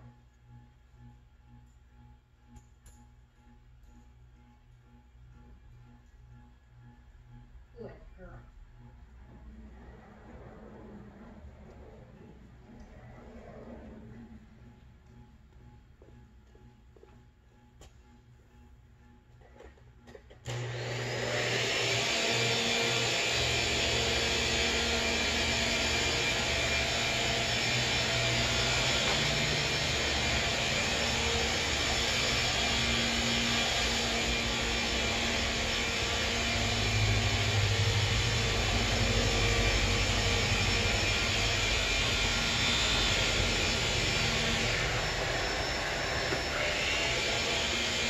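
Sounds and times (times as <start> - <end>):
vacuum cleaner running: 9.3 - 14.8, 20.1 - 48.0.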